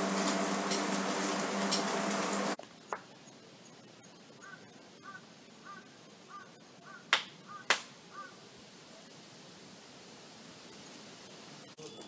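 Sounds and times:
sharp hand claps: 7.1s - 7.9s.

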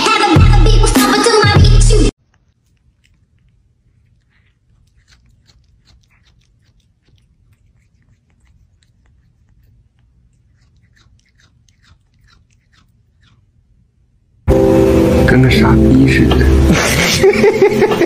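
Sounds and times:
cat licking its paw: 2.2s - 13.8s.

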